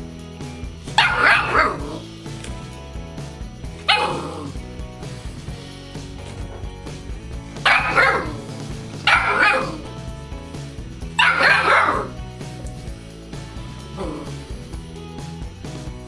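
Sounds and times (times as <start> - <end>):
background music: 0.0 - 16.0
puppy barking: 0.9 - 2.0, 3.8 - 4.6, 7.6 - 9.9, 11.1 - 12.1.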